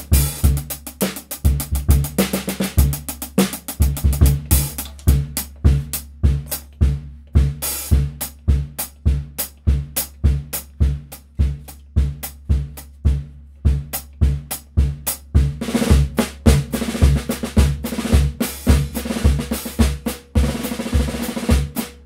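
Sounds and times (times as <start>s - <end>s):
drum kit groove: 0.0s - 22.0s
bass drum thuds: 3.8s - 21.8s
cross-stick clicks: 4.6s - 5.7s.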